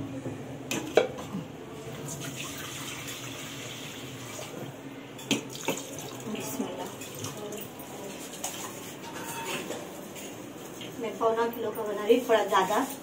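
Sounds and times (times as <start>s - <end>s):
water running: 2.0s - 4.7s.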